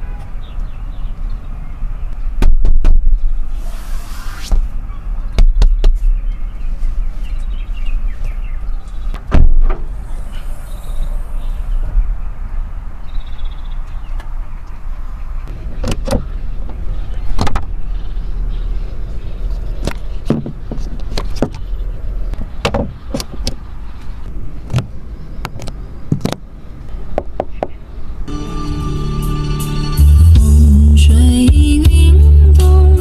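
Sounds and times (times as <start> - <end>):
steady low rumble: 6.2 - 22.4.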